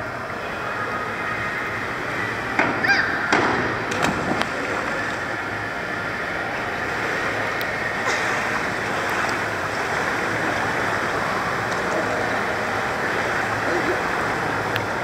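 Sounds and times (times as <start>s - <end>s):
pool water sloshing: 0.0s - 15.0s.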